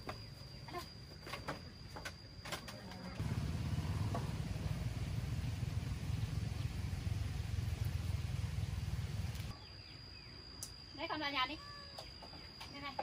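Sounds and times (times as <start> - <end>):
low engine rumble: 3.1 - 9.5.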